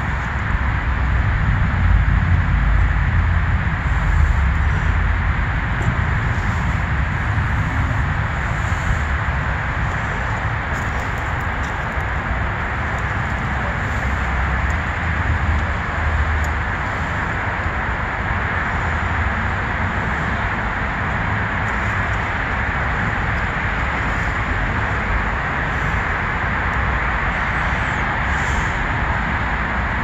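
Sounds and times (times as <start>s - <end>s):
low wavering rumble: 0.6s - 8.3s
steady hiss: 6.1s - 11.4s.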